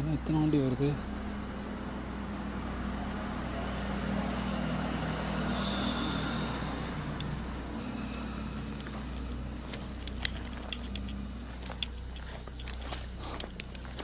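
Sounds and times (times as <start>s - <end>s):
insects droning: 0.0s - 14.0s
vehicle passing: 0.4s - 11.5s.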